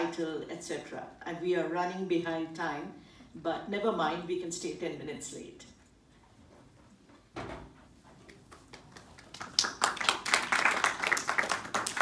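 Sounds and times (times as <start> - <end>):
audience applause: 8.7 - 12.0.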